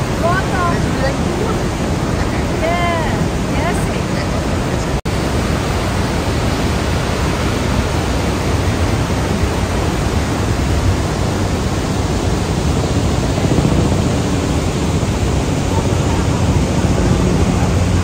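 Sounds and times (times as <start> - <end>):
waterfall rushing: 0.0 - 18.0.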